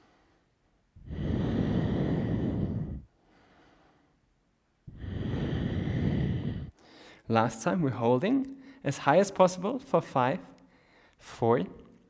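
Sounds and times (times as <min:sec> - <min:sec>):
man breathing through mouth: 0:01.0 - 0:04.2, 0:04.9 - 0:07.3, 0:10.7 - 0:11.2.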